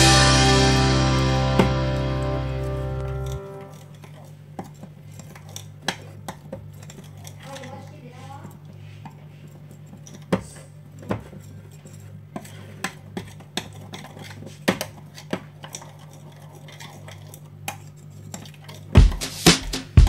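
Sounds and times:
loud music: 0:00.0 - 0:03.7, 0:19.0 - 0:20.0
low hum: 0:00.0 - 0:04.0.

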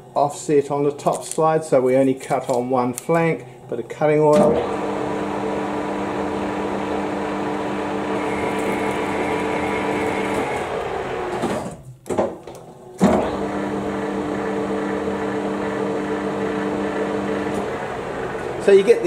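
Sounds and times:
machine clunk: 0:04.3 - 0:04.7, 0:11.3 - 0:13.4
lathe motor humming: 0:04.4 - 0:11.6, 0:13.0 - 0:19.0
lathe spindle winding down: 0:04.5 - 0:11.6, 0:13.0 - 0:19.0.

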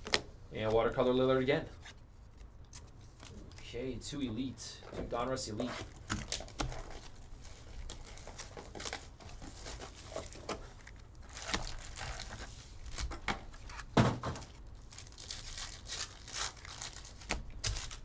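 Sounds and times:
card pack wrapper tearing: 0:05.8 - 0:18.0
plastic shrink wrap crinkling: 0:05.8 - 0:18.0.

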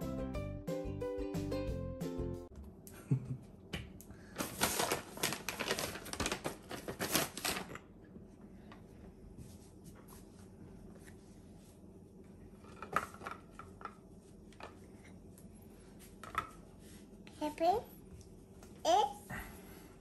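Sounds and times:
paper bag crinkling: 0:04.4 - 0:07.8.

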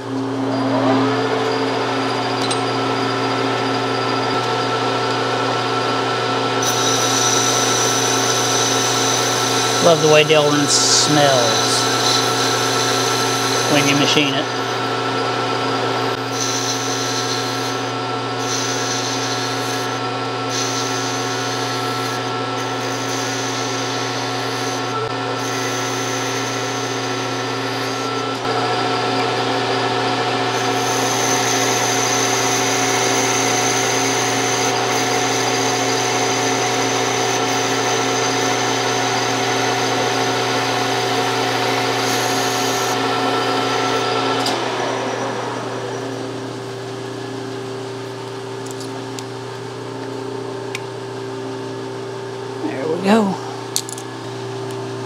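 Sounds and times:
metal lathe gear drive whining: 0:00.0 - 0:47.7
lathe tool cutting plastic: 0:06.4 - 0:28.4, 0:30.5 - 0:46.3.

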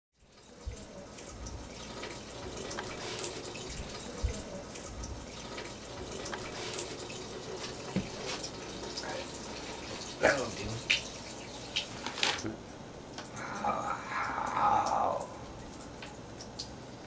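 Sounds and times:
faucet running into sink: 0:00.4 - 0:12.4.

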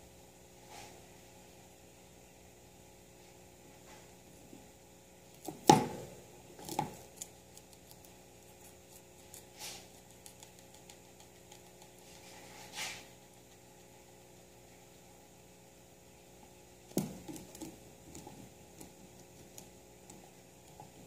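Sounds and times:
guinea pig crunching greens: 0:04.3 - 0:15.4, 0:16.3 - 0:21.0.

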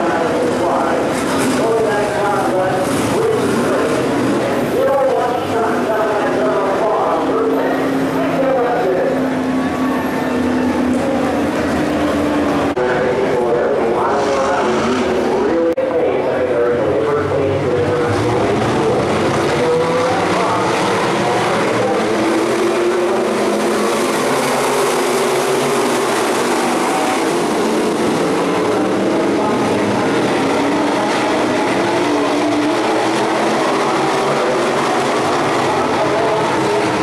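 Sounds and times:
racing car engines droning: 0:00.0 - 0:37.0.

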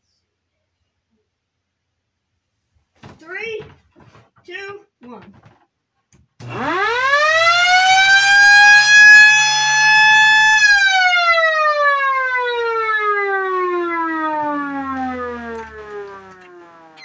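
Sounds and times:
electric motor siren wailing: 0:06.4 - 0:17.0.

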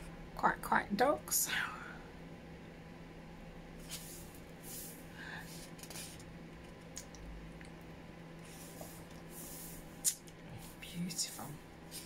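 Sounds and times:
book pages turning: 0:03.8 - 0:06.3.

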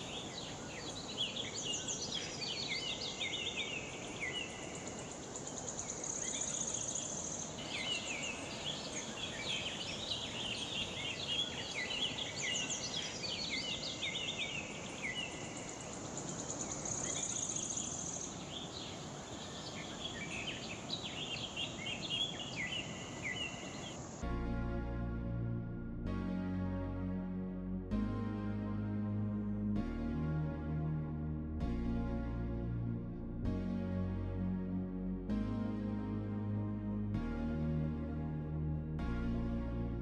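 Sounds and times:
birds calling and chirping: 0:00.0 - 0:24.2.

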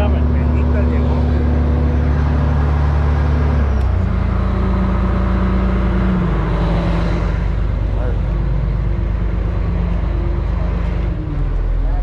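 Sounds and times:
boat engine droning: 0:00.0 - 0:12.0.

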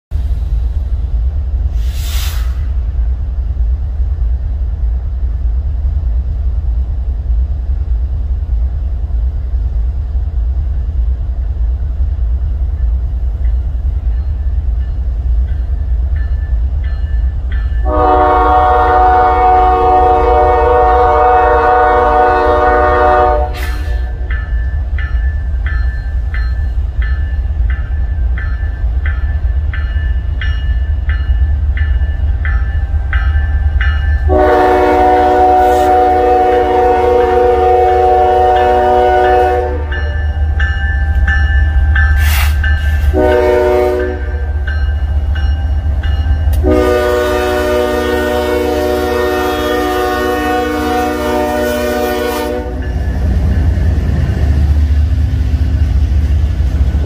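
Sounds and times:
diesel locomotive rumble: 0:00.1 - 0:57.0
locomotive bell ringing: 0:12.8 - 0:18.6, 0:24.0 - 0:35.1, 0:38.5 - 0:46.8, 0:52.7 - 0:54.3
train horn blast: 0:17.8 - 0:24.3, 0:34.2 - 0:40.2, 0:42.2 - 0:44.6, 0:46.5 - 0:53.0.

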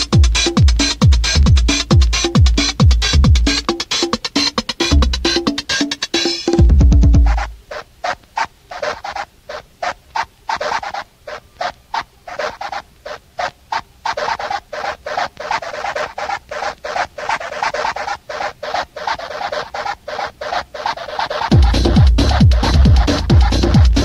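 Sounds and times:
raspy percussive loop: 0:00.0 - 0:07.7, 0:14.1 - 0:24.0.

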